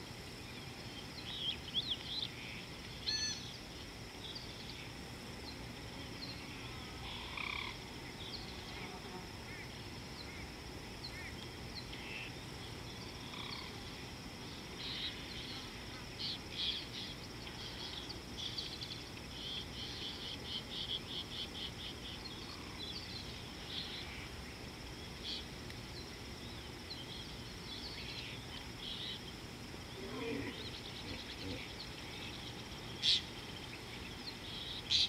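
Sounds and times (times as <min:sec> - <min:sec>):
high insect drone: 0:00.0 - 0:35.0
low background hiss: 0:00.0 - 0:35.0
bird trill: 0:03.0 - 0:03.6.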